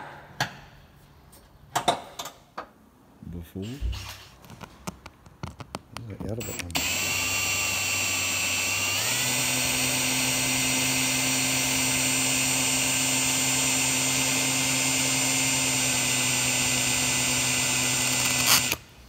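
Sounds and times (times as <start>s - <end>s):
cordless drill whining: 6.4s - 18.9s.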